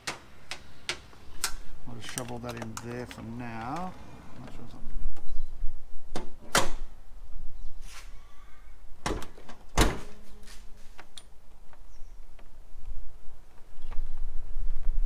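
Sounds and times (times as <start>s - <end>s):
hands clicking and knocking cable: 0.0s - 3.9s.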